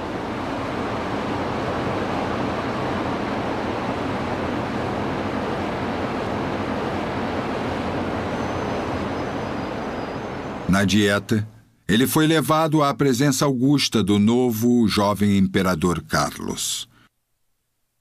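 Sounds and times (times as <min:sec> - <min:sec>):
boat engine hum: 0:00.0 - 0:12.7.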